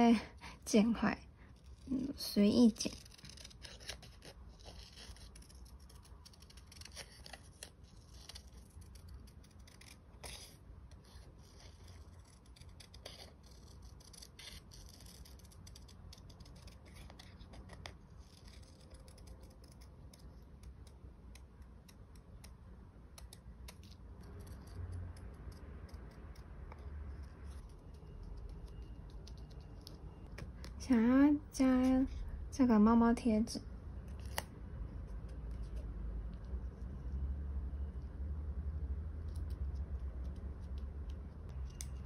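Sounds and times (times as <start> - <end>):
scissors snipping paper: 1.9 - 30.7.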